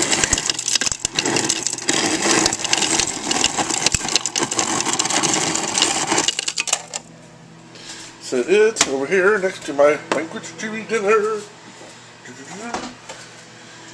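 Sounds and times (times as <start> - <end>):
crushed ice clattering into glass: 0.0 - 7.0
ice dispenser motor grinding: 0.0 - 7.1.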